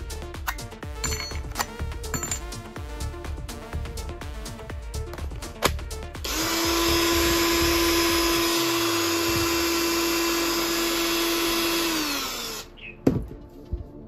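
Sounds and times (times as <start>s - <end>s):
drill whining at high speed: 6.2s - 12.7s.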